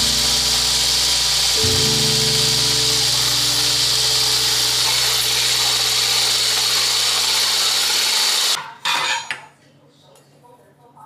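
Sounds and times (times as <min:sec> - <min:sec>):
electric blender whisking: 0:00.0 - 0:08.6.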